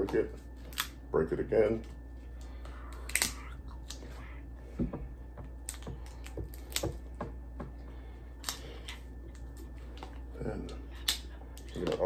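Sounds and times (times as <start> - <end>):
crab shell cracking: 0.7 - 1.0, 2.9 - 4.0, 5.6 - 7.0, 8.4 - 12.0.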